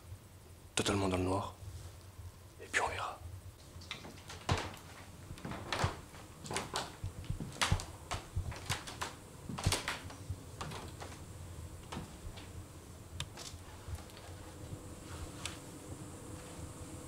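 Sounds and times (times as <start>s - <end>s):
slow footsteps: 3.6s - 15.7s.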